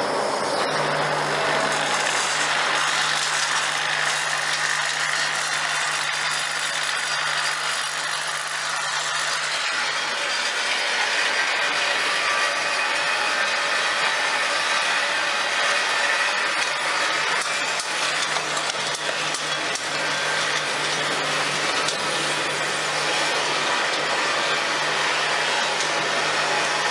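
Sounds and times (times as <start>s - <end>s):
capping machine whirring: 0.0s - 26.9s.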